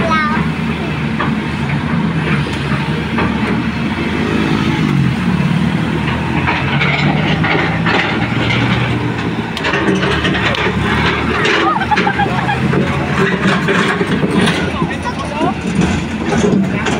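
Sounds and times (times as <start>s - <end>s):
excavator diesel engine running: 0.0s - 16.9s
metal clanks and clicks: 6.0s - 16.9s.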